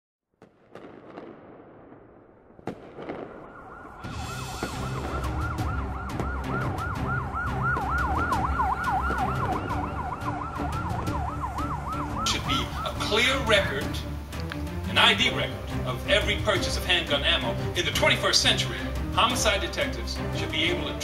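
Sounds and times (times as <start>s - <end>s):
siren yelping: 3.1s - 14.0s
low pulsing beat: 4.0s - 12.8s.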